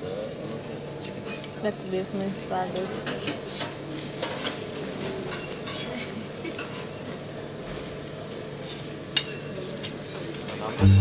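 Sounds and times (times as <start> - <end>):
omelettes sizzling on griddle: 2.7 - 10.8.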